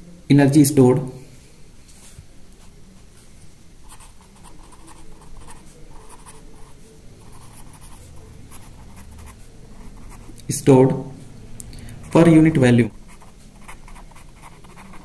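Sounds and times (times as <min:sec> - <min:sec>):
pen scratching on paper: 0:03.9 - 0:10.4, 0:12.0 - 0:15.0.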